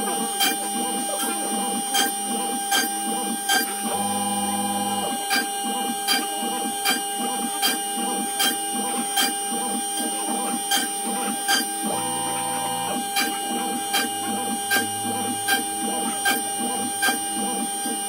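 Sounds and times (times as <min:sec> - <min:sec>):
router spindle whining: 0:00.0 - 0:18.0
stepper motors whirring: 0:00.4 - 0:18.0
drill bit ticks: 0:13.0 - 0:17.3.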